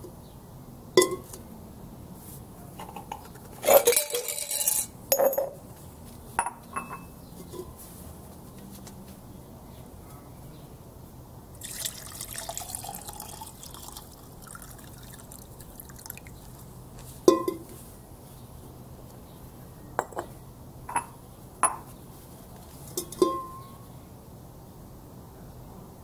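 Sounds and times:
glass clinking: 1.0s - 1.3s, 3.7s - 5.6s, 6.4s - 7.7s, 11.6s - 16.2s, 17.3s - 17.7s, 20.0s - 20.3s, 20.9s - 21.9s, 22.9s - 23.8s
liquid pouring into a glass jar: 11.6s - 16.7s.

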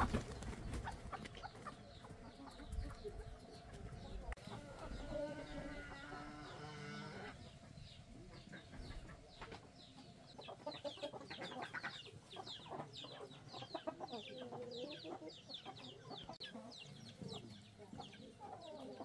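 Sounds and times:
chickens clucking: 0.0s - 19.0s.

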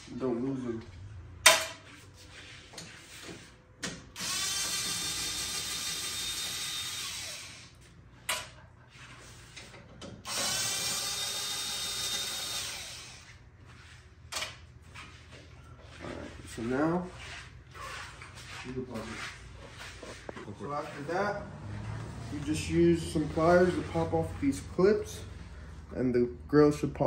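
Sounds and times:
power driver motor whine: 4.2s - 7.7s, 10.3s - 13.3s.

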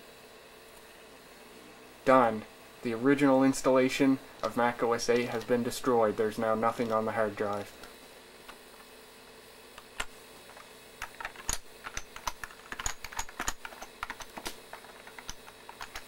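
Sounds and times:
faint steady hum: 0.0s - 16.0s
keyboard typing: 11.0s - 16.0s.

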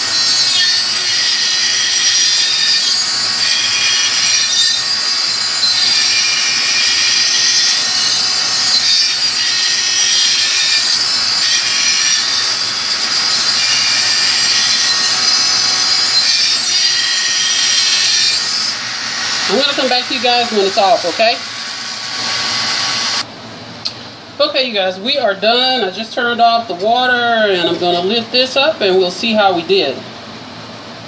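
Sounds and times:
diamond wheel grinding glass: 0.0s - 23.2s.

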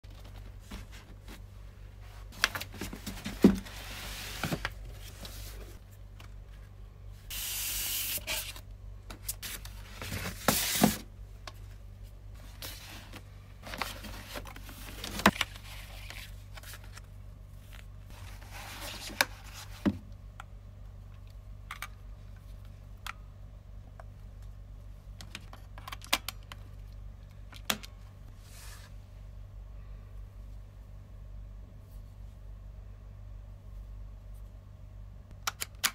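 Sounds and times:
cardboard packaging rustling: 12.4s - 19.7s.

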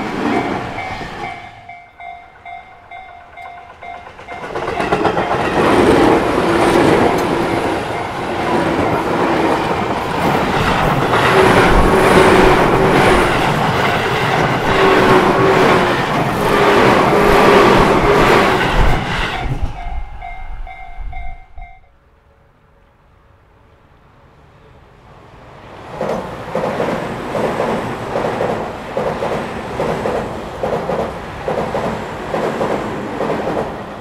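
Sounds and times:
electric train passing: 0.0s - 34.0s
level crossing warning bell: 0.2s - 5.8s, 6.6s - 9.3s, 19.3s - 22.0s.

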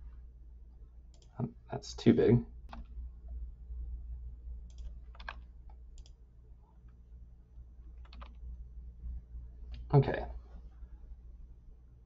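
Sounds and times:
low steady hum: 0.0s - 12.0s
mouse and keyboard clicks: 8.0s - 8.4s.

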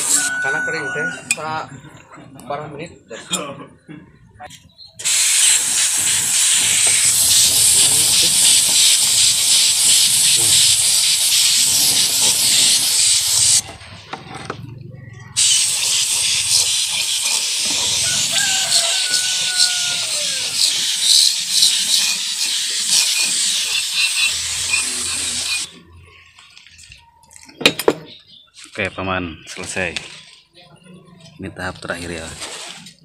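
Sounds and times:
spray gun hissing: 5.0s - 13.6s, 15.4s - 25.7s.

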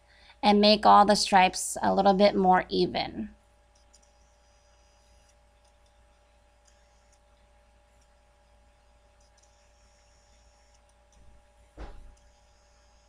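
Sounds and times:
faint steady hum: 0.0s - 13.0s
faint high clicks: 3.7s - 4.3s, 9.2s - 11.3s.

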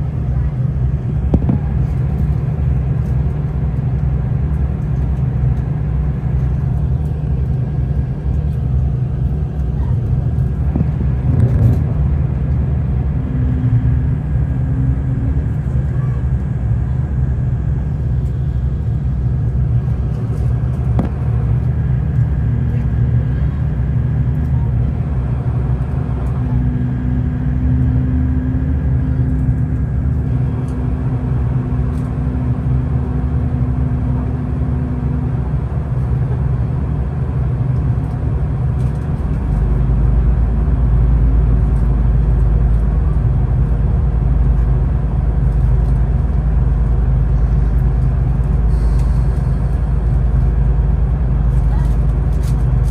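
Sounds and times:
moving vehicle rumble: 0.0s - 52.9s
steady hum: 0.0s - 52.9s.

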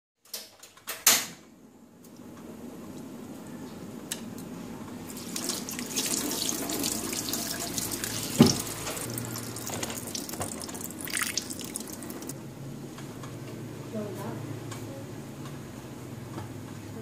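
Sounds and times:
tap water splashing in sink: 5.1s - 12.3s.

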